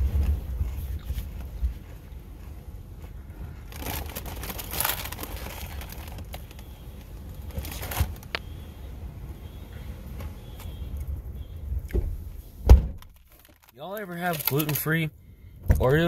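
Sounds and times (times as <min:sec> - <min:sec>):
packaging crinkling: 0:03.6 - 0:08.4, 0:13.0 - 0:14.9.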